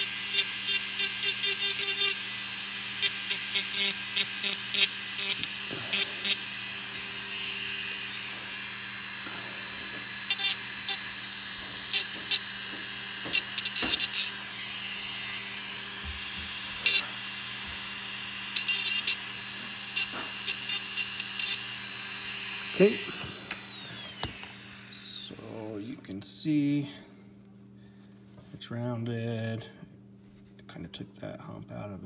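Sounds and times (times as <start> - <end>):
file scraping metal: 0.0 - 16.0, 16.8 - 17.2, 18.5 - 21.7.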